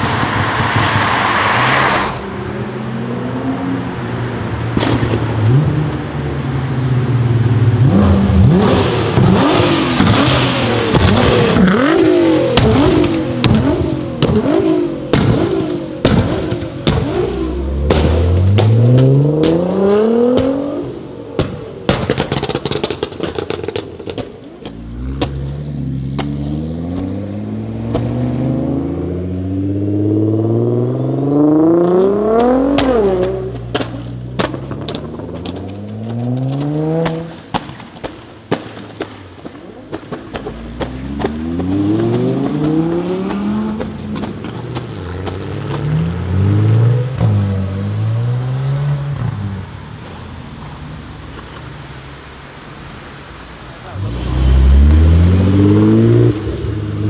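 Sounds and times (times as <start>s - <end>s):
car engines accelerating hard: 0.0s - 57.0s
exhaust crackles and pops: 8.5s - 28.4s, 32.0s - 47.5s, 49.0s - 57.0s.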